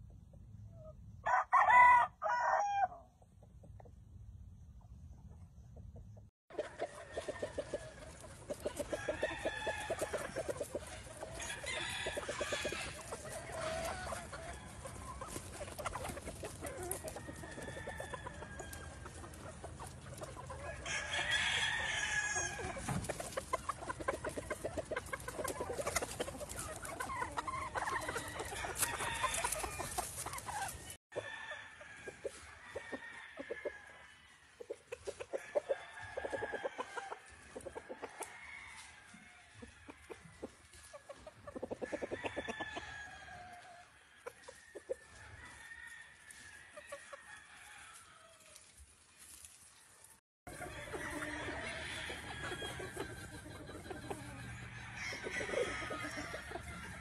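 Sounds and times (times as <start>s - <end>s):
rooster crowing: 1.2s - 3.0s, 11.4s - 13.0s, 17.1s - 19.0s, 20.7s - 22.8s, 28.1s - 30.0s, 50.5s - 53.1s, 54.4s - 57.0s
hens clucking: 3.1s - 31.3s, 34.6s - 45.6s, 50.5s - 57.0s.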